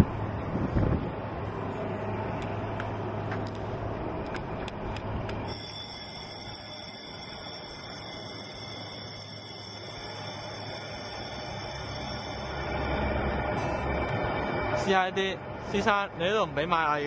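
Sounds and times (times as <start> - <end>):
steady low hum: 0.0 - 17.0
background music high tones: 5.5 - 17.0.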